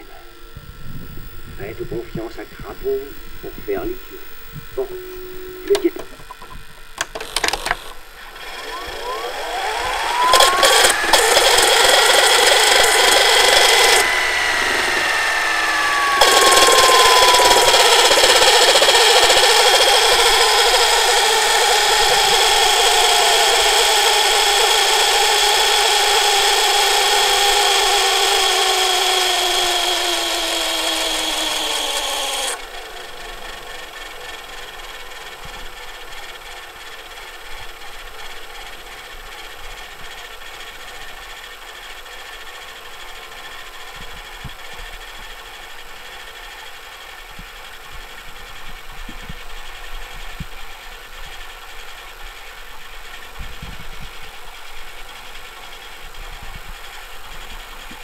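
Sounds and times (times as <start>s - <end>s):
reel motor whine with hiss: 0.0s - 58.0s
tape mechanism clicks: 1.3s - 32.6s.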